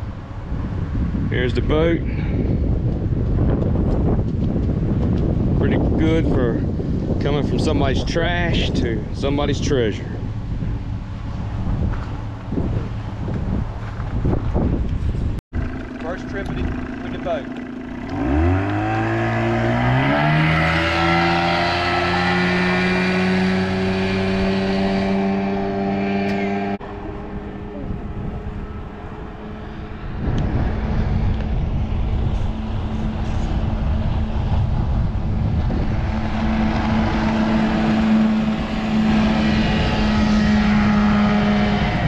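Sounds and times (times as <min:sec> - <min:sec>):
heavy low rumble: 0:00.0 - 0:42.0
outboard motor running: 0:15.5 - 0:42.0.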